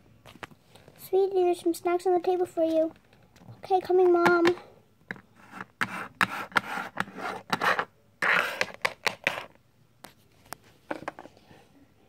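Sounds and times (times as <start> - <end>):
toy scraping on wooden table: 5.4 - 9.5.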